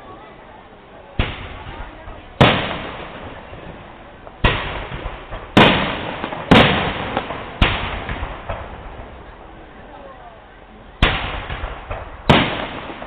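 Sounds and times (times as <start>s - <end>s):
firework shells bursting: 1.2s - 9.3s, 11.0s - 13.0s.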